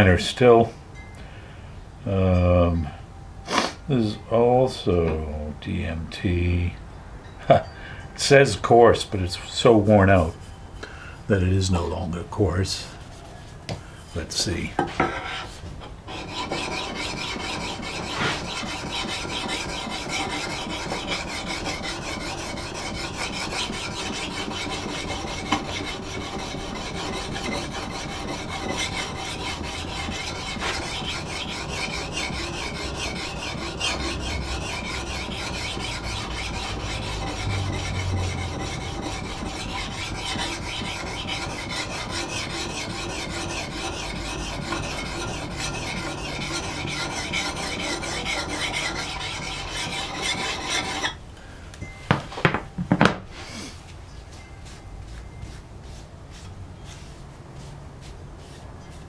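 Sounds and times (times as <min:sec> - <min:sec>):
sharpening plate scraping steel: 0:16.1 - 0:51.2.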